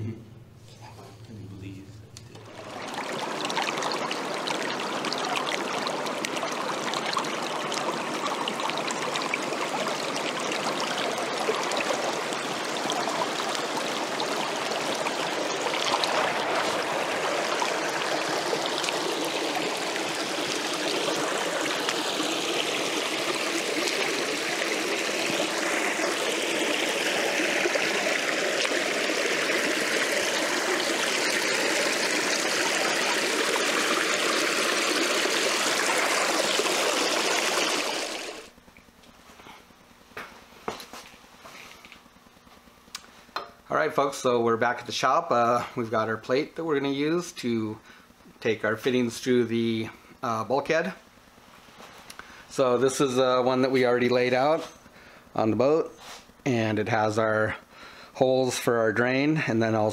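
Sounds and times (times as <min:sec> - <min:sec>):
stream flowing over stones: 0:02.4 - 0:38.6.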